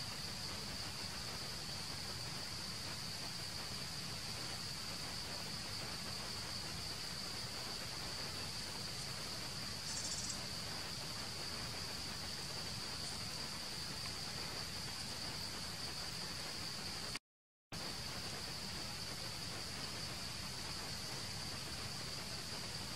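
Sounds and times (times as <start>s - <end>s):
insect chorus drone: 0.0s - 17.2s, 17.8s - 22.9s
rapid insect trill: 0.0s - 17.2s, 17.8s - 22.9s.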